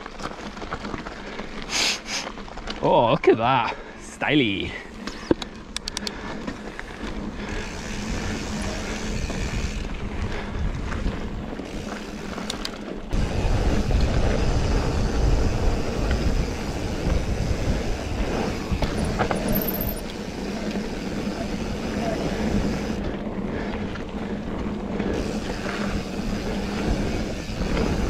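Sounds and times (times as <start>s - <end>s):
bike tyre roar: 4.6s - 28.0s
bike frame rattle: 18.4s - 20.7s.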